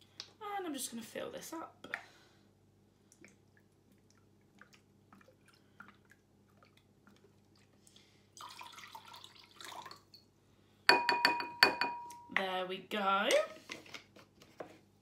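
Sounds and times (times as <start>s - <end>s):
liquid pouring and splashing: 3.1s - 10.3s.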